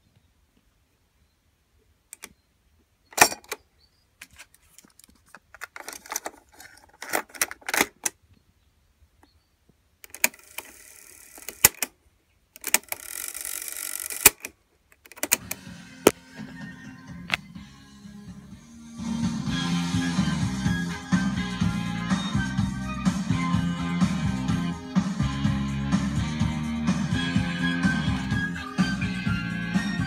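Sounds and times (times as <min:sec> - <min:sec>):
tape winding whir: 0:10.1 - 0:11.9, 0:12.6 - 0:16.2
cassette deck buttons clicking: 0:14.2 - 0:15.6.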